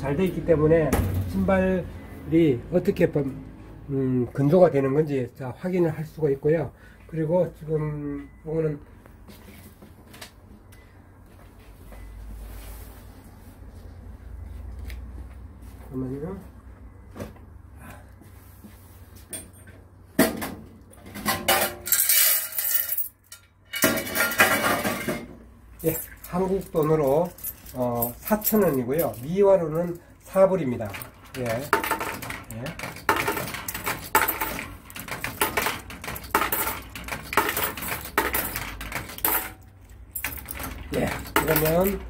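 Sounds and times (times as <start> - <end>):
small metal objects clinking: 21.5 - 25.0, 30.8 - 42.0.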